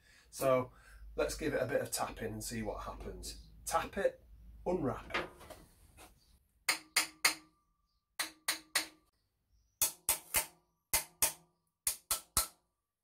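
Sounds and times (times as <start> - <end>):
hammer tapping metal pipe: 6.7 - 7.6, 8.2 - 9.1, 9.8 - 12.6.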